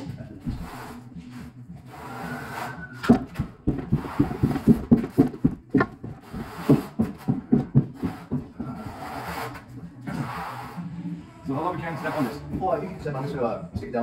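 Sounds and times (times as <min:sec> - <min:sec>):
trowel scraping mortar on concrete: 0:06.1 - 0:10.8, 0:11.6 - 0:13.5.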